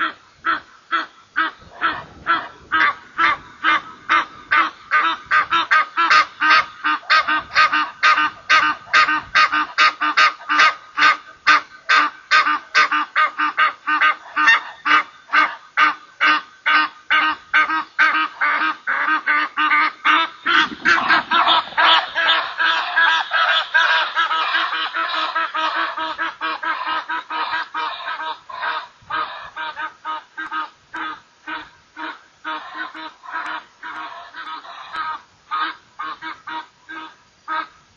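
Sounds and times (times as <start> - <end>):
geese honking: 0.0 - 37.8.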